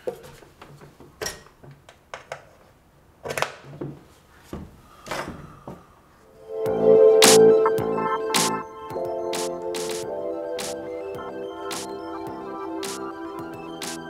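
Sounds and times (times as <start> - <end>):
loud music: 6.4 - 14.0.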